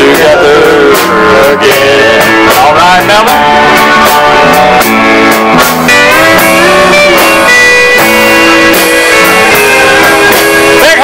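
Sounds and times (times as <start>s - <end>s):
bass: 0.0s - 11.0s
rhythm guitar: 0.0s - 11.0s
steady drum beat: 0.0s - 11.0s
steel guitar sliding notes: 0.0s - 11.0s.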